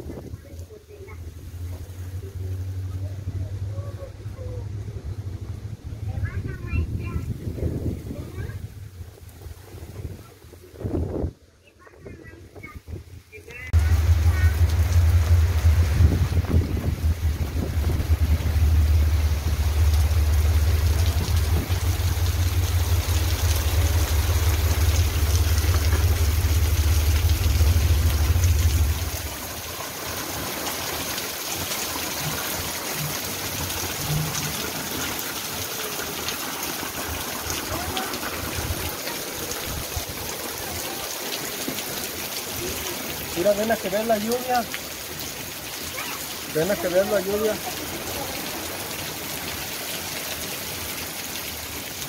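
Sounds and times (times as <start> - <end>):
steady rain hiss: 0.0 - 52.0
wind buffeting microphone: 6.0 - 11.4, 12.0 - 26.5.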